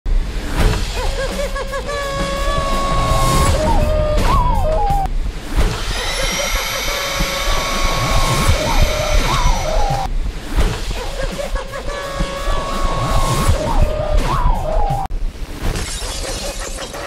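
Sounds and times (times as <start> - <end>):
sound effect: 0.4 - 17.0
high-pitched cartoon voice: 0.9 - 2.9, 10.9 - 12.8.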